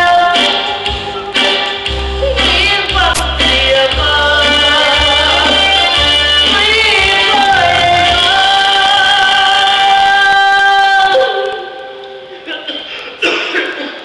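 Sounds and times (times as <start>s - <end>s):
singer holding long note: 6.9s - 12.0s.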